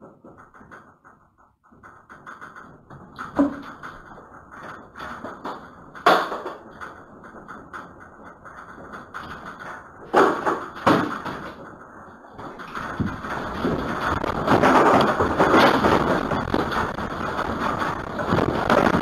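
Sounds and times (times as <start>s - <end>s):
objects knocking and rattling: 0.0s - 19.0s
low earthquake rumble: 11.5s - 19.0s.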